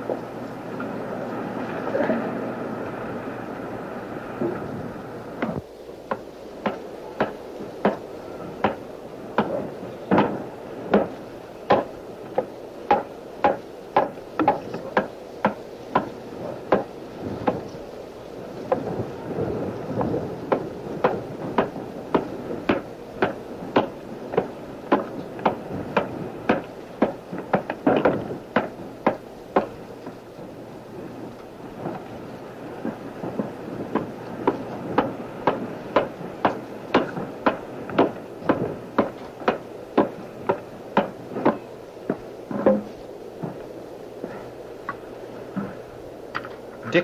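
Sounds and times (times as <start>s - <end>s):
adze chopping wood: 5.4s - 8.0s, 8.6s - 8.8s, 9.4s - 16.1s, 16.7s - 17.6s, 20.6s - 29.8s, 34.0s - 43.6s.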